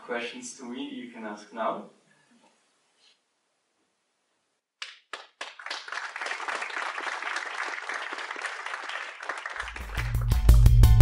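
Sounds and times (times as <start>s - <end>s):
audience applauding: 4.8s - 10.6s.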